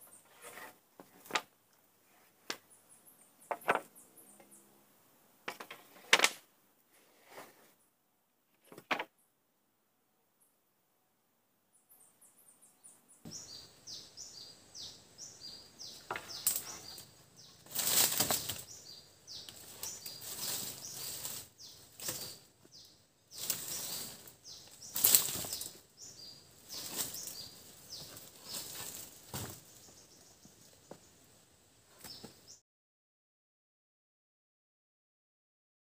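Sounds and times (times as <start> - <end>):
wooden planks knocking and scraping: 0.2 - 1.5, 3.5 - 3.9, 5.5 - 6.4, 8.5 - 9.1, 15.9 - 16.8.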